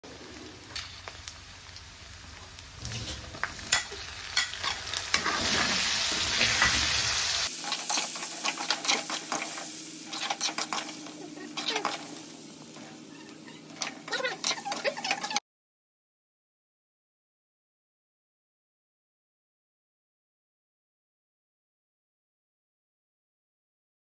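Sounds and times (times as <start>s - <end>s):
meat sizzling in hot oil: 0.1s - 15.4s
ladle scraping a pan: 2.8s - 7.0s, 7.7s - 15.4s.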